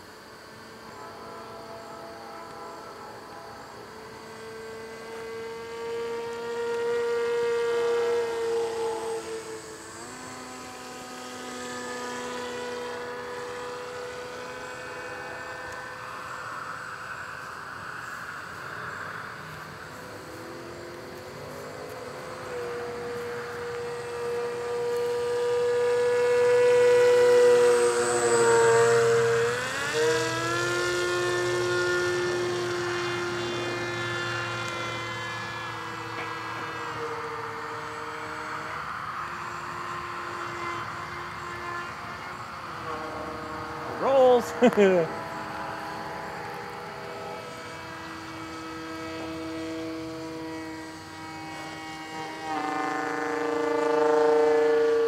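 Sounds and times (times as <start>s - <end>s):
model plane motor whine: 0.0s - 55.0s.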